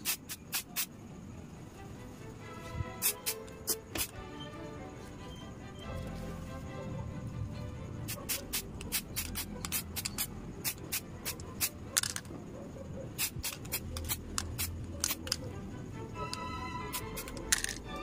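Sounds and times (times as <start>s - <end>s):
spray can hissing in bursts: 0.0s - 1.0s, 3.0s - 4.2s, 8.0s - 11.9s, 13.1s - 15.4s, 16.9s - 17.7s
background music: 1.5s - 12.2s, 13.8s - 18.0s.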